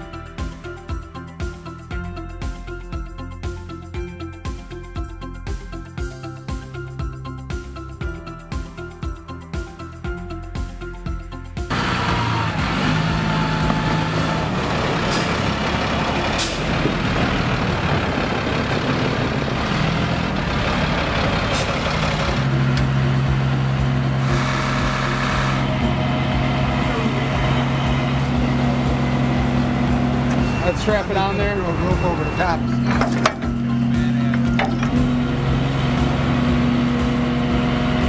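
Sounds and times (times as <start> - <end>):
truck diesel engine running: 11.7 - 38.0.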